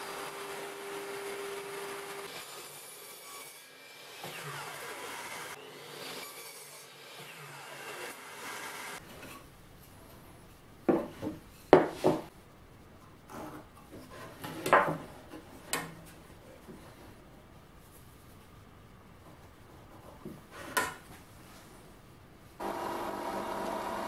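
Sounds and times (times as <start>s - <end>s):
wood knocking on workbench: 10.9s - 12.3s.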